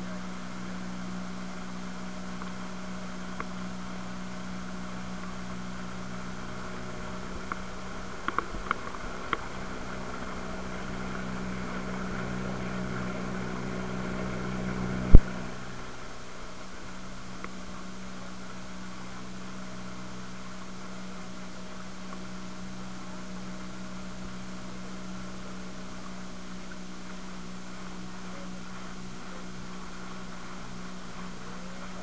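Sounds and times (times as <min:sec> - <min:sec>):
motorboat engine humming: 0:00.0 - 0:32.0
water splashing against hull: 0:00.0 - 0:32.0.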